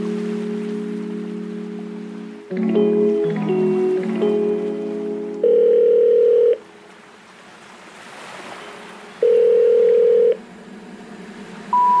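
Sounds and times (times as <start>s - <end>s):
short rising telephone tones: 5.4s - 6.6s, 9.2s - 10.4s, 11.7s - 12.0s
telephone ringing tone: 5.4s - 6.6s, 9.2s - 10.4s, 11.8s - 12.0s.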